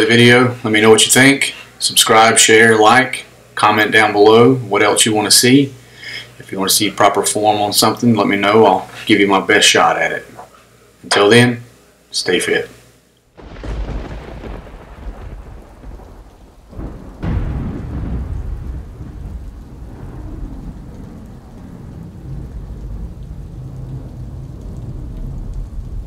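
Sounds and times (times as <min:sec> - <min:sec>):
rain: 0:13.3 - 0:26.0
loud thunderclap: 0:13.4 - 0:26.0
rolling thunder: 0:13.4 - 0:26.0.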